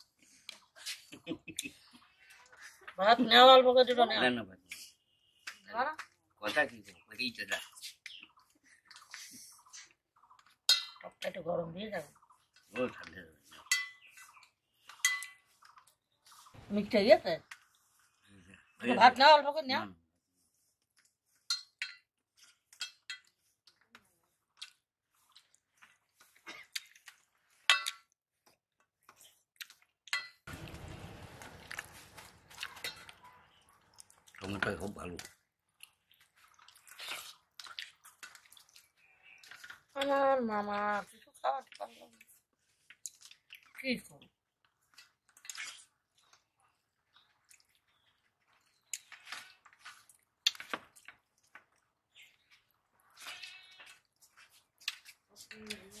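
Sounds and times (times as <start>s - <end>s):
chewing: 7.9s - 10.7s, 22.3s - 27.6s, 29.0s - 30.2s, 31.5s - 40.1s, 41.1s - 56.0s
fingers squelching food: 31.7s - 40.2s, 44.7s - 55.8s.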